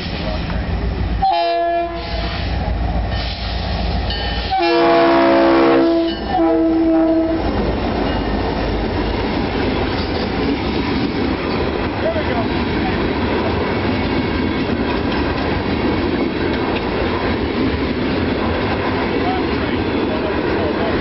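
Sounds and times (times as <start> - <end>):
freight cars rumbling on rails: 0.0 - 21.0
train air horn: 1.2 - 2.6, 4.4 - 7.5.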